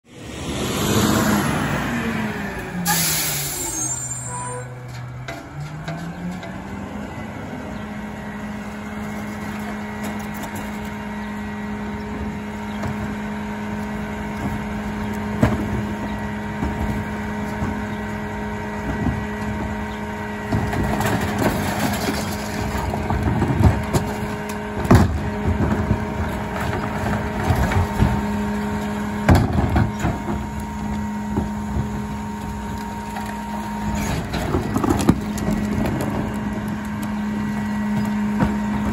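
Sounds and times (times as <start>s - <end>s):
garbage truck engine: 0.1s - 38.9s
recyclables rattling and crashing: 8.9s - 38.9s
bins banging against hopper: 12.2s - 38.9s.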